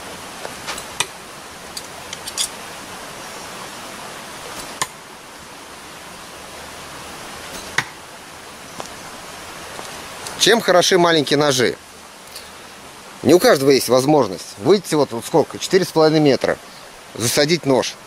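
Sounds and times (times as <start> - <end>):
rushing hiss: 0.0 - 18.0.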